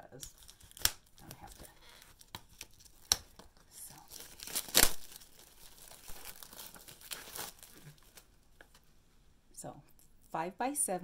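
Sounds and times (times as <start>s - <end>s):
plastic wrapping crinkling and tearing: 0.0s - 8.8s.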